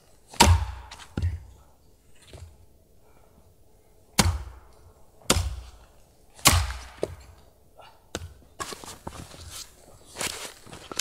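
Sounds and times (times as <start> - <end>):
heavy chopping blows on wood: 0.3 - 1.5, 6.4 - 7.3.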